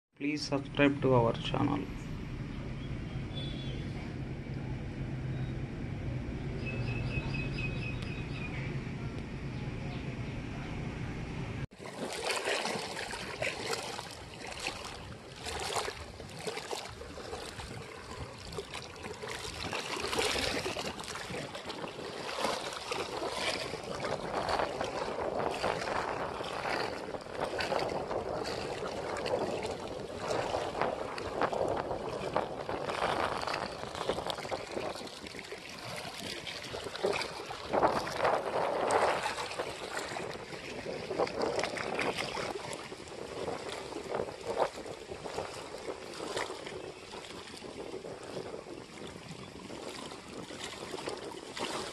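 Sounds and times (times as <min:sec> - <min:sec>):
waves splashing against rocks: 0:11.7 - 0:51.9
wind buffeting microphone: 0:12.6 - 0:51.9.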